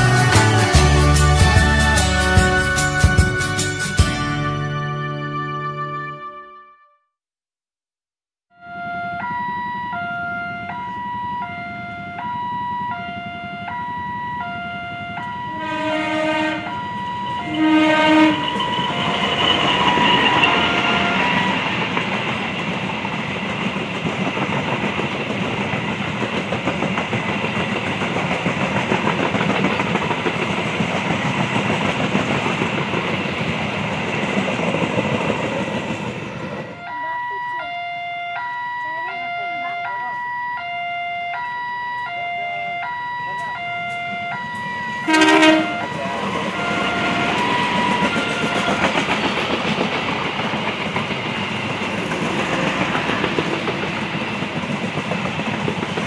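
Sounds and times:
passing train coaches: 0:00.0 - 0:05.8, 0:08.6 - 0:56.0
locomotive horn blasts: 0:14.4 - 0:19.2, 0:19.8 - 0:21.8, 0:36.7 - 0:41.4, 0:42.1 - 0:49.2.

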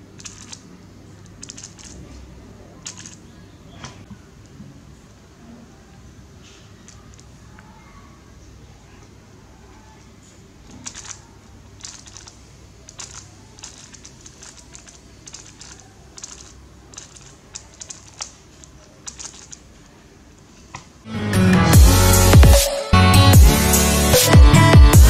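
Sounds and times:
speed cube layers clicking: 0:00.1 - 0:00.7, 0:01.3 - 0:02.1, 0:02.8 - 0:03.2, 0:10.7 - 0:19.7
electronic music with heavy beat: 0:21.7 - 0:25.0.

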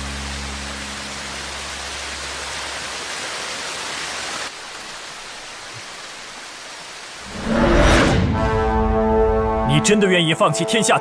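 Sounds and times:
steady hiss: 0:00.0 - 0:07.8
waterfall rushing: 0:00.0 - 0:08.9.

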